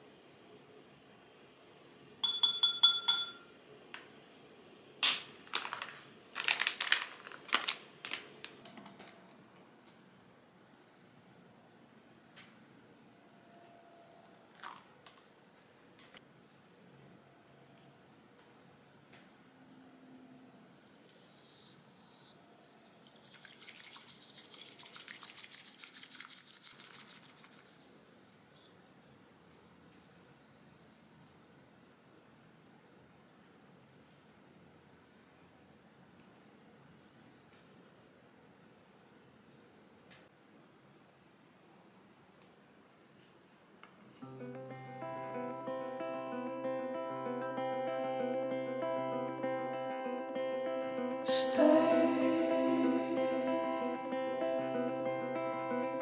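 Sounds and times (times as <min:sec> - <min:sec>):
spoon tapping ceramic bowl rim: 0:02.2 - 0:03.5
pouch crinkling: 0:05.4 - 0:09.1
bamboo whisk swishing in bowl: 0:20.9 - 0:28.4.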